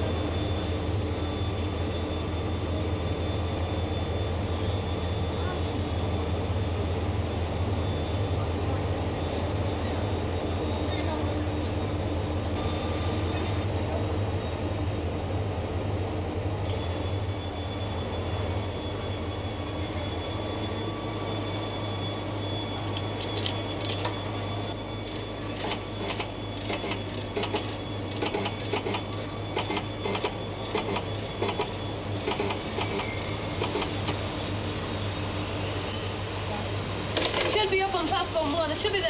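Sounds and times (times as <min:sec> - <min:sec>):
fortune-telling machine clicking: 0:25.1 - 0:33.0.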